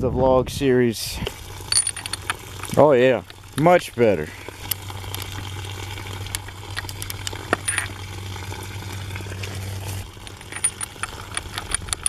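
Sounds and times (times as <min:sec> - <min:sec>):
steady low hum: 0:01.1 - 0:12.0
ratchet and socket clinking: 0:01.7 - 0:02.4, 0:06.8 - 0:07.9, 0:10.2 - 0:12.0.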